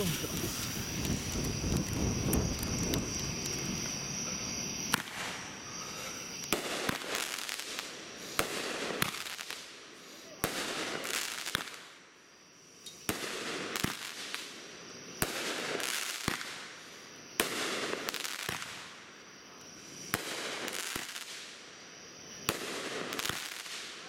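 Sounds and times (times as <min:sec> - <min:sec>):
fireworks shots bursting: 0:00.0 - 0:09.8, 0:10.4 - 0:12.0, 0:13.0 - 0:16.8, 0:17.4 - 0:19.0, 0:20.0 - 0:21.6, 0:22.4 - 0:24.0
crackling hiss of fireworks stars: 0:00.0 - 0:24.0.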